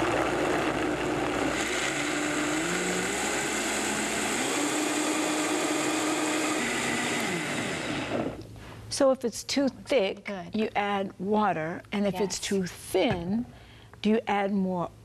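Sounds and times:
blender running: 0:00.0 - 0:08.4.

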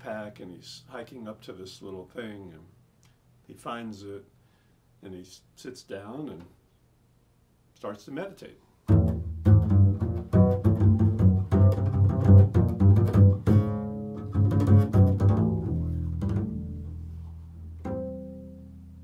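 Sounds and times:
double bass plucked notes: 0:08.9 - 0:19.0.

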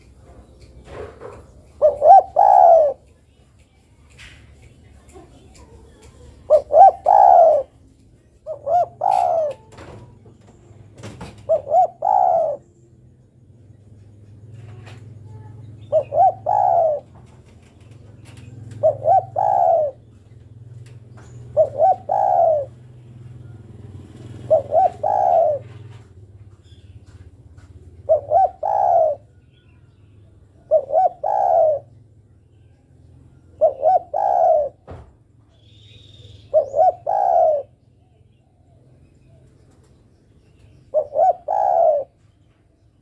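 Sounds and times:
dove cooing: 0:00.2 - 0:03.1, 0:06.2 - 0:10.2, 0:11.0 - 0:12.7, 0:14.6 - 0:26.2, 0:27.6 - 0:29.5, 0:30.5 - 0:32.0, 0:33.3 - 0:35.1, 0:36.0 - 0:38.1, 0:40.9 - 0:42.3.

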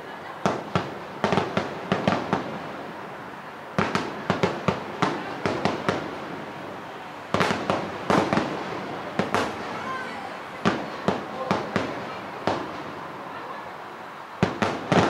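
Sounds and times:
firework shells bursting: 0:07.3 - 0:09.8, 0:14.4 - 0:15.0.

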